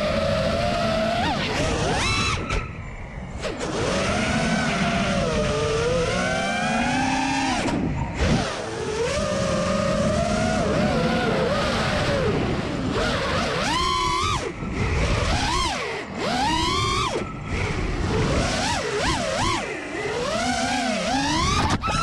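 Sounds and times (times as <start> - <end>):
wind rumble: 0.0 - 20.6
drone motors whining: 0.0 - 22.0.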